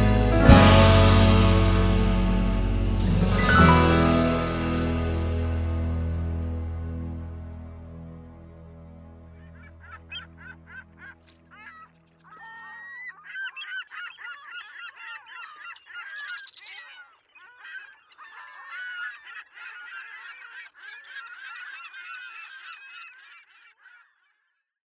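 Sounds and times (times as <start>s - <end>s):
music: 0.0s - 11.2s
geese honking: 9.3s - 24.1s.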